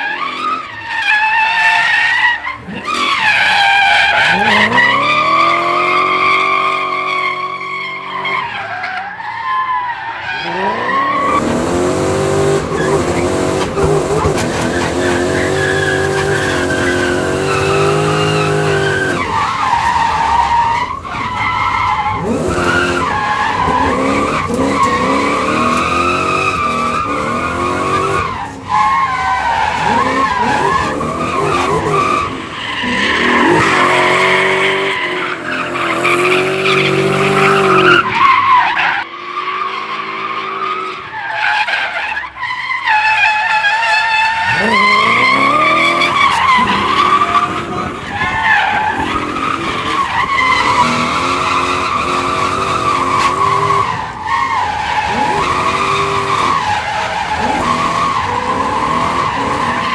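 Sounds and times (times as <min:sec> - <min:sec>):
tyres squealing: 0:00.0 - 0:39.0, 0:40.3 - 0:59.9
car engine revving: 0:04.2 - 0:08.2, 0:10.4 - 0:20.5, 0:21.2 - 0:38.1, 0:44.3 - 0:59.9.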